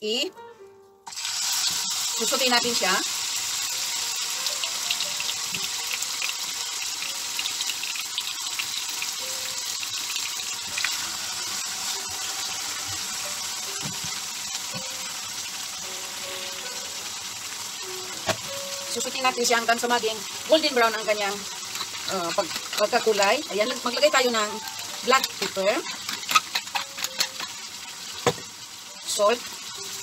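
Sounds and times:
meat sizzling in frying pan: 1.1s - 30.0s.

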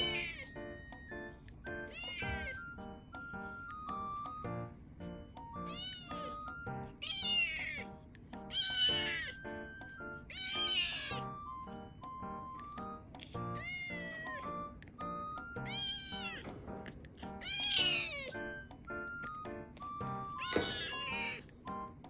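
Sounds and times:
kitten meowing: 0.0s - 1.1s, 1.8s - 2.8s, 5.6s - 7.9s, 8.5s - 11.5s, 13.4s - 16.5s, 17.3s - 21.6s.

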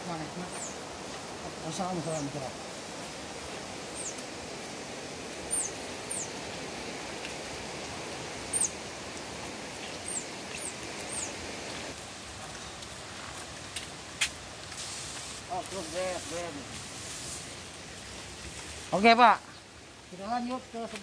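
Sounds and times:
bird chirping: 0.4s - 0.8s, 3.9s - 4.2s, 5.5s - 6.4s, 8.5s - 8.8s, 9.8s - 11.8s
pressure sprayer hissing: 14.2s - 17.7s.

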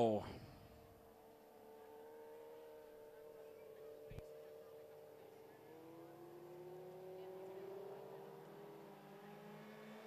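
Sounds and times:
faint racing car engines: 0.0s - 10.0s.

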